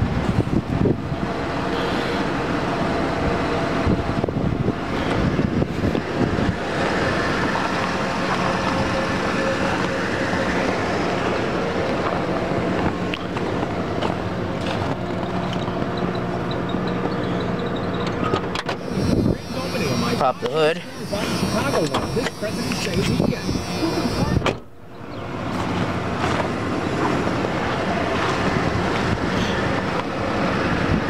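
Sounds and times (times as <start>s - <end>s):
pickup engine idling: 0.0s - 30.6s.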